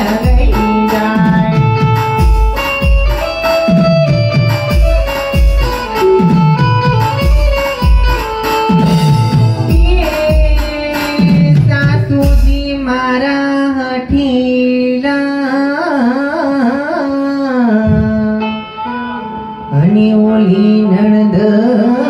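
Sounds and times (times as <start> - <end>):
singing voice with vibrato: 0.0 - 22.0.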